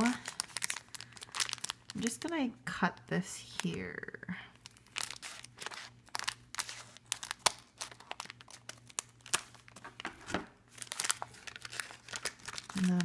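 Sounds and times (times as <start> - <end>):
plastic crinkling: 0.0 - 13.0.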